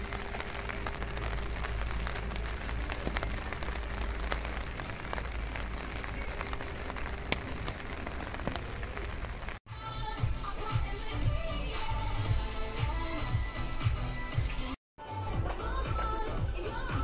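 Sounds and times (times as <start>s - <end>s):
rain hissing on street: 0.0s - 9.7s.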